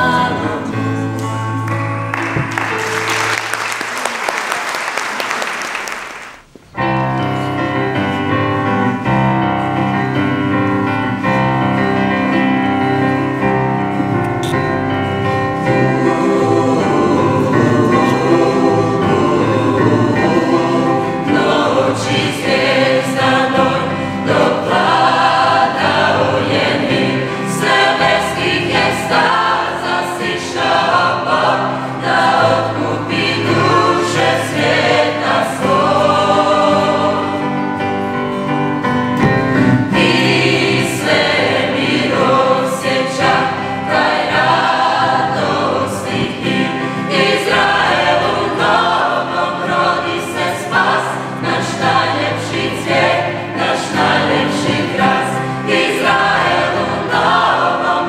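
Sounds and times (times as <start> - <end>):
choir singing sustained chords: 0.0 - 1.2, 14.8 - 38.7, 39.3 - 58.0.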